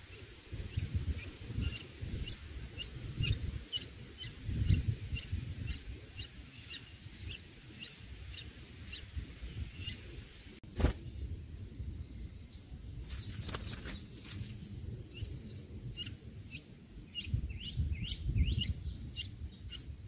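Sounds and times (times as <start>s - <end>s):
nestlings chirping: 0.0s - 10.9s.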